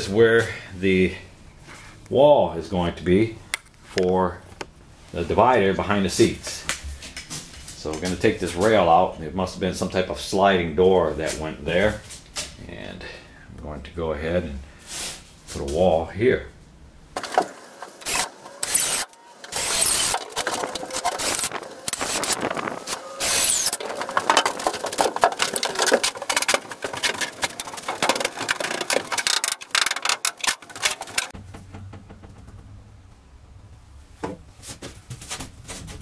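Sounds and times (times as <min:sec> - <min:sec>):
wooden boards knocking and scraping: 0:22.4 - 0:32.7.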